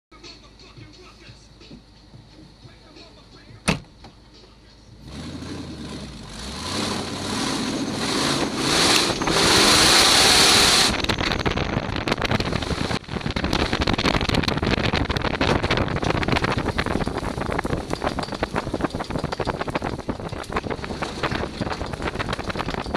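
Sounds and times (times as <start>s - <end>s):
truck engine revving: 4.9s - 22.9s
wind buffeting microphone: 7.6s - 22.9s.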